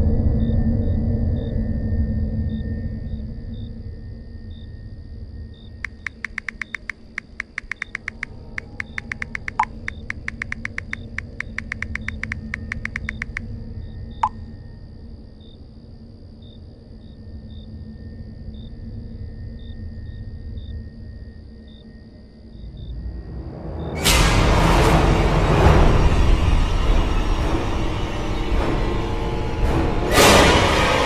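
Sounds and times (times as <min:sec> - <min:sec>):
smartphone keyboard clicks: 0:05.9 - 0:13.4.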